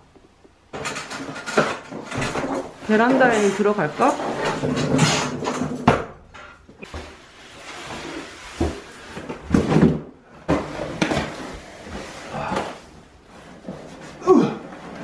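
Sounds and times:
cardboard scraping and sliding: 6.9s - 15.0s
boxes knocking on floor: 8.5s - 11.4s.

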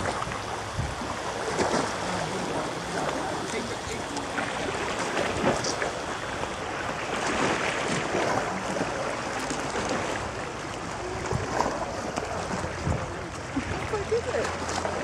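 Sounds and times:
rushing outdoor background noise: 0.0s - 15.0s.

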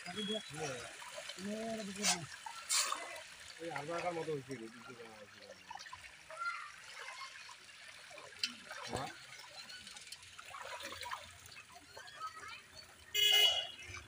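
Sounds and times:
fish splashing and gulping: 0.0s - 3.7s, 4.7s - 12.0s.

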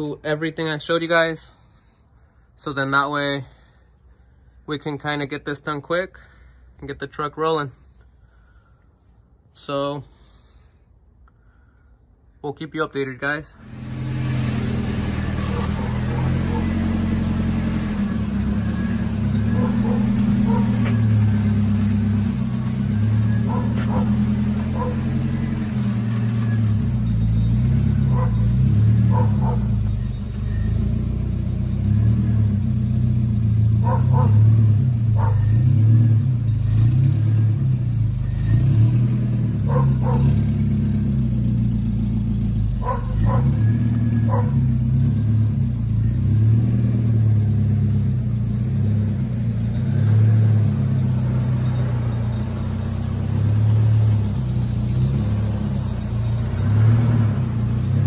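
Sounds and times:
pickup engine idling: 13.6s - 36.7s, 47.2s - 58.0s.

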